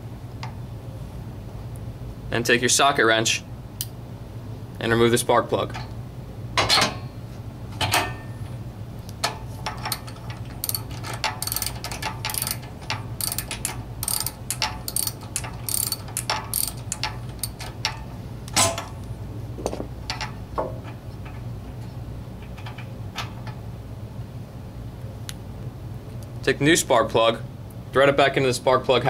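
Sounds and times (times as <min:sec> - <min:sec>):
ratchet wrench clicking: 0:09.7 - 0:18.0.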